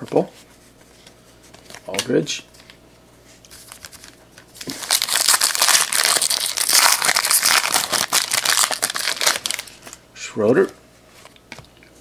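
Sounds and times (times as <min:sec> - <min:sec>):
foil wrapper crinkling and tearing: 0:03.6 - 0:10.0.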